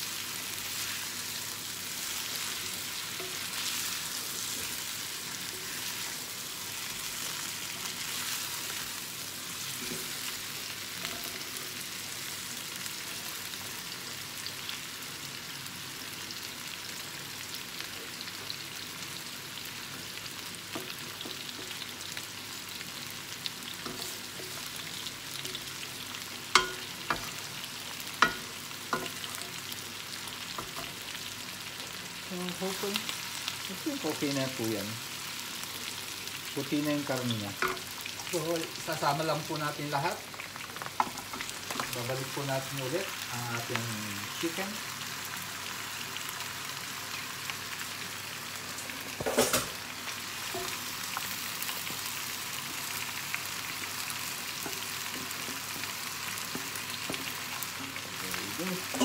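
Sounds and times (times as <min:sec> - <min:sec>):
chicken sizzling in oil: 0:00.0 - 0:59.0
spatula knocking against pan: 0:26.6 - 0:27.3.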